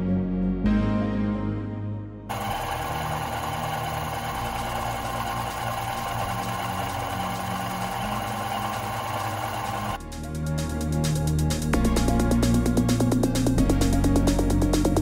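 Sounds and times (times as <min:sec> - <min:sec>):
face mill cutting whine: 0:02.3 - 0:10.0
milling machine hum: 0:02.3 - 0:10.0.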